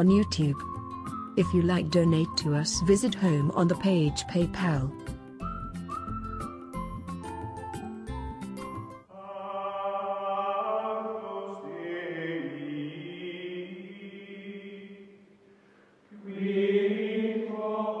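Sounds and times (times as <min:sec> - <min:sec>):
choral voices holding notes: 0:09.1 - 0:15.2, 0:16.1 - 0:18.0.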